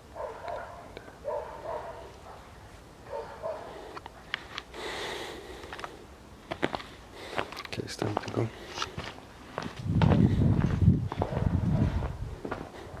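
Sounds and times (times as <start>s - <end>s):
puppy barking: 0.2s - 3.8s, 11.2s - 12.0s.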